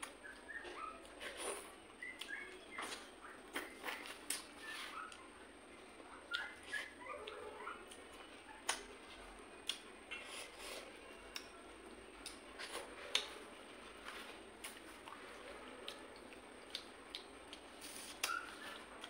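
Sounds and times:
faint high chirps: 0.0s - 5.4s
chewing with wet lip smacks: 14.6s - 19.0s.

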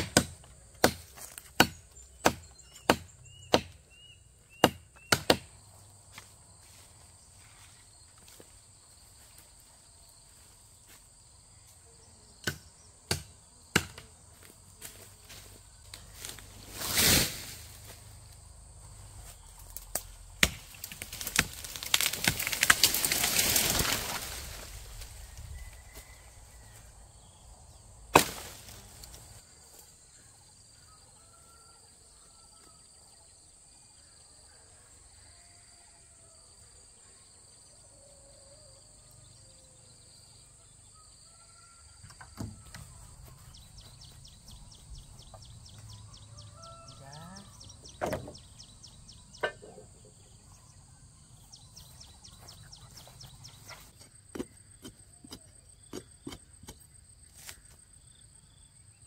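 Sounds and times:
faint insect trill: 22.0s - 59.0s
birds chirping: 42.8s - 54.8s.

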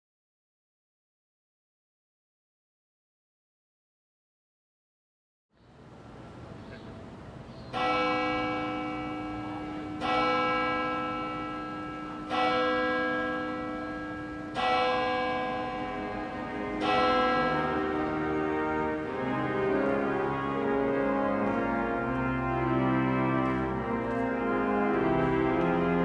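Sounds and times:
church bell tolling: 7.7s - 26.0s.

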